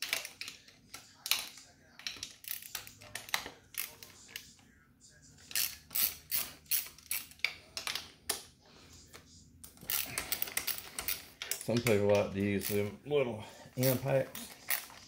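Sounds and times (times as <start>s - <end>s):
socket ratchet clicking: 5.5s - 8.0s.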